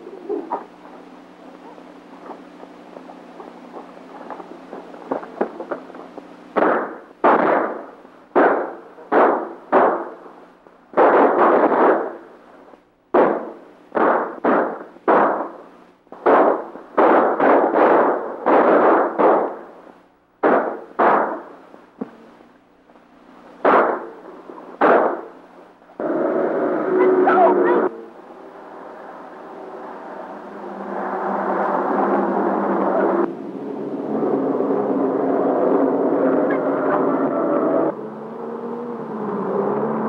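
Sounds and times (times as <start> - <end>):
low soundtrack hum: 0.0 - 11.0, 21.4 - 40.0
gunshots: 0.6 - 12.3, 13.1 - 19.8, 20.4 - 22.3, 23.6 - 26.4.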